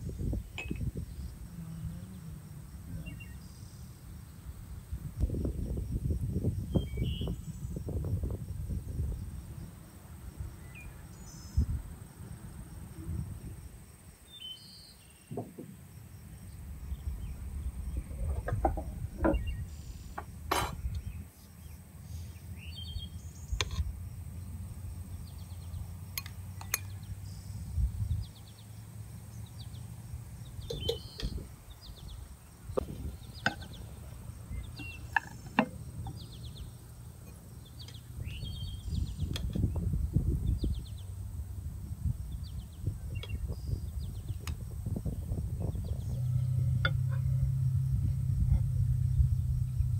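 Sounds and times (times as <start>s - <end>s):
low rumble: 16.4s - 19.8s, 43.6s - 49.9s.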